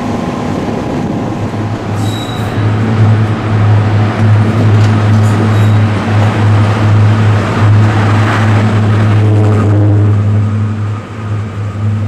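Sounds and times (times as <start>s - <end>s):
diesel locomotive passing: 0.0s - 12.0s.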